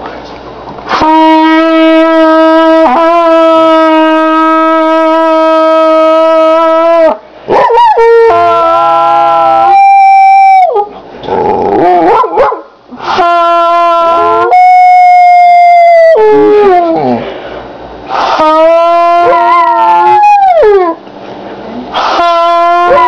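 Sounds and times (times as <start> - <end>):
trumpet long held notes: 0.9 - 7.0, 13.1 - 16.4, 22.0 - 23.0
puppy howling and yipping: 19.1 - 21.0.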